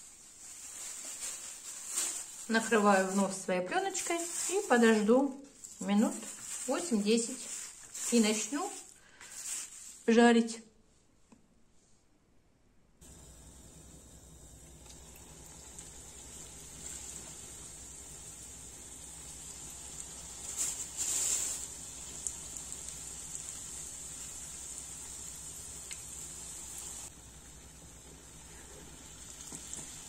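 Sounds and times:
dough frying in oil: 0:13.0 - 0:30.0.

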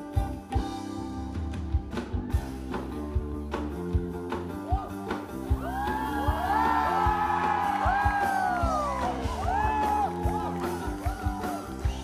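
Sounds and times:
live rock band playing: 0:00.0 - 0:12.0
crowd whooping: 0:04.7 - 0:12.0.

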